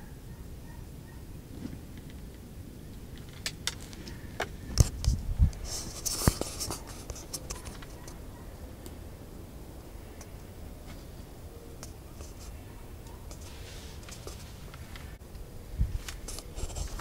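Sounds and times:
camera handling clicks and scrapes: 4.8s - 8.0s.

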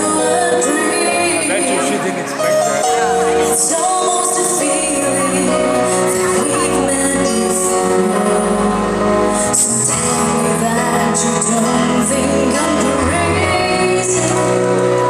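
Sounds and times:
woman singing into a microphone: 0.0s - 2.2s, 3.3s - 15.0s
amplified instrumental music: 0.0s - 15.0s.

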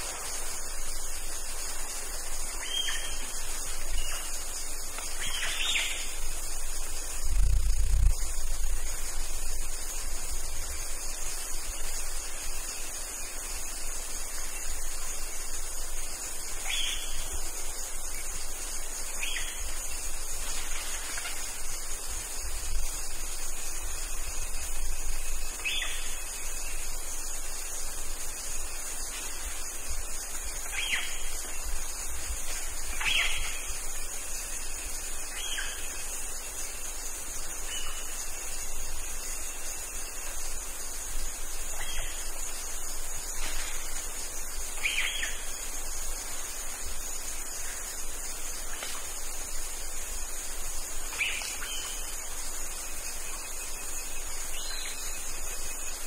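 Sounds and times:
crickets chirping: 0.0s - 56.0s.

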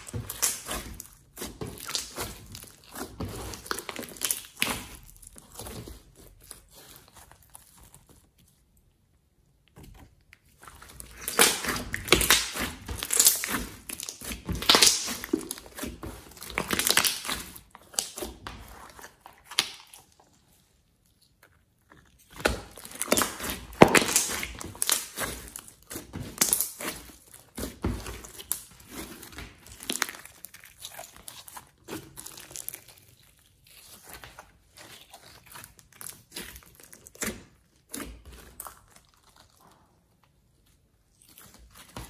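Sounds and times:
slime squelching and popping: 0.0s - 8.8s, 9.5s - 42.0s.

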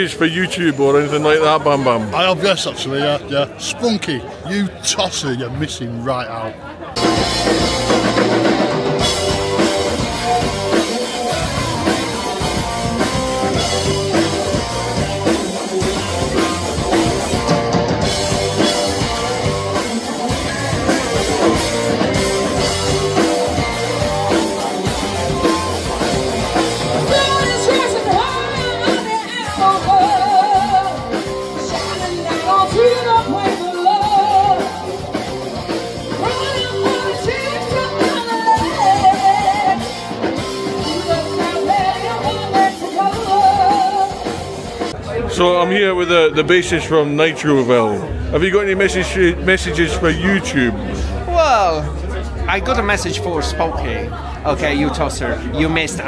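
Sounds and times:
live rock band playing: 7.0s - 45.3s.

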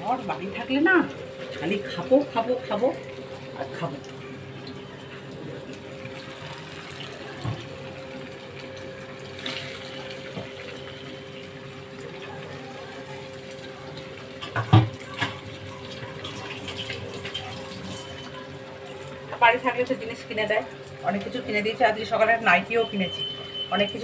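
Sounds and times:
tap water running into steel bowl: 0.7s - 19.9s.

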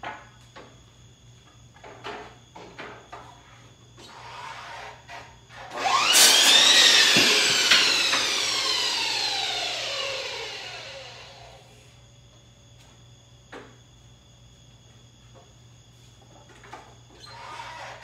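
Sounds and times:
miter saw whining and cutting wood: 5.5s - 11.8s.

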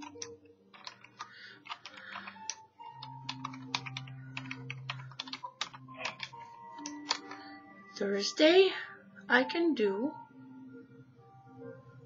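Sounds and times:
typing on computer keyboard: 0.0s - 7.4s.

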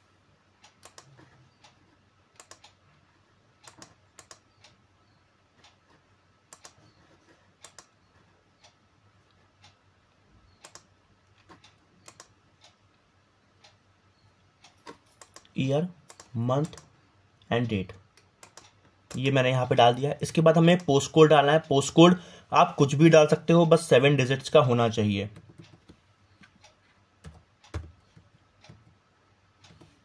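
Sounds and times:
computer mouse clicks: 0.6s - 2.8s, 3.6s - 9.8s, 10.5s - 13.0s, 14.6s - 16.9s, 18.1s - 19.3s, 25.3s - 29.0s.

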